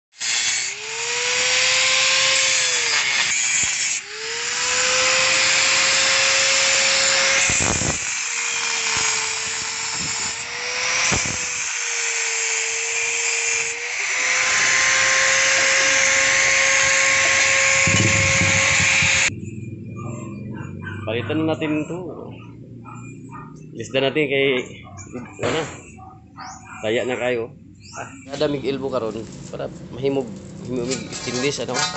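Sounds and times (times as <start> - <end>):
angle grinder cutting metal: 0.1 - 19.3, 28.3 - 31.9.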